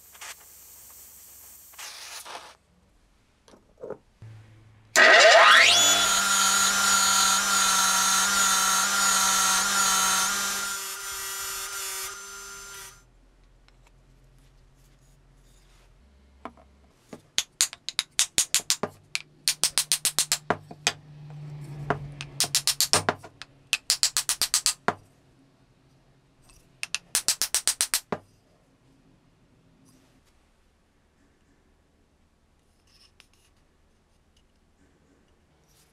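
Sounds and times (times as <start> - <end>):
grinding wheel whine: 5.0 - 13.0.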